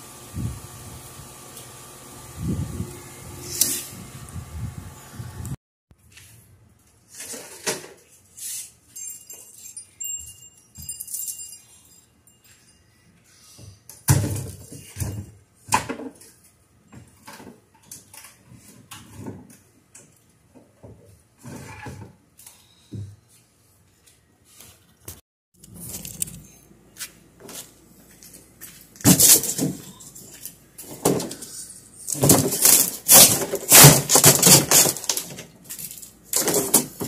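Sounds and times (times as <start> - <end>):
metal wind chime tinkling: 8.8 - 13.5.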